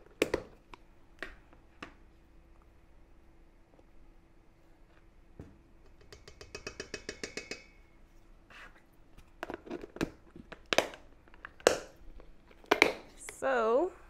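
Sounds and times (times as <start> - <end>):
spoon clicking on plastic container: 5.9 - 7.8.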